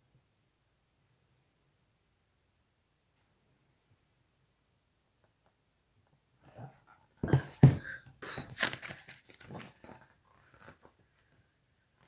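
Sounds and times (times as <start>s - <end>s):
paper and cover rustling: 8.3s - 11.0s.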